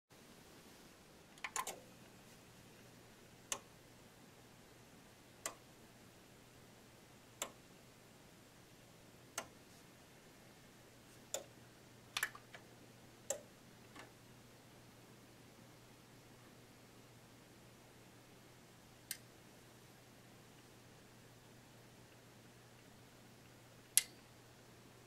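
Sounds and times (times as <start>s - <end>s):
low steady hum: 0.2s - 25.0s
sharp relay clicks: 1.4s - 1.9s, 23.8s - 24.3s.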